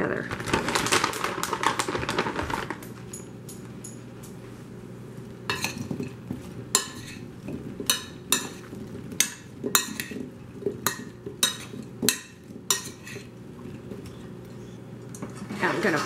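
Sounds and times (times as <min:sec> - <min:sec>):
spoon stirring sprouts in bowl: 0:05.5 - 0:14.2.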